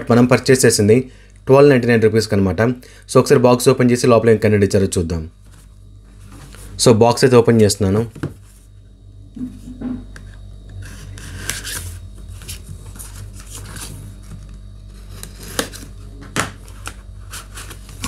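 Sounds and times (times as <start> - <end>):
cardboard scraping and rubbing: 10.8 - 16.1.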